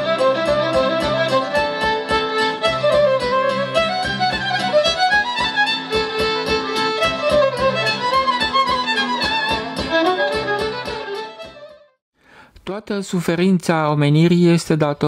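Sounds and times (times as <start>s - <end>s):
instrumental music with quick beat: 0.0s - 11.9s.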